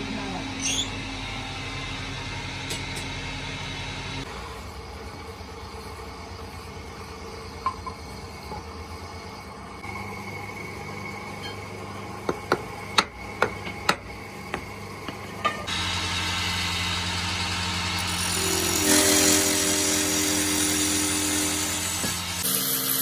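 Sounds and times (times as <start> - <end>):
electric motor humming: 15.7 - 23.0
sandpaper rasping on spinning wood: 18.0 - 23.0.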